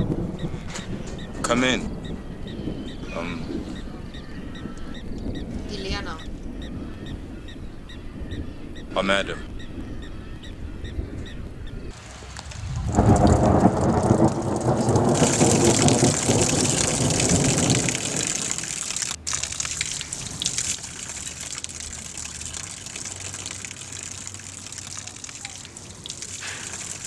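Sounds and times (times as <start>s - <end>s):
water falling from shower: 11.9s - 27.0s.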